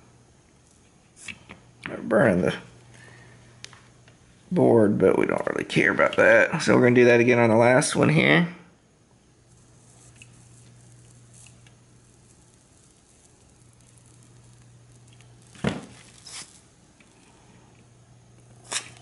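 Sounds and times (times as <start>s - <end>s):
low steady hum: 0.0s - 19.0s
desoldering bulb air puffs: 2.6s - 4.2s, 9.3s - 19.0s.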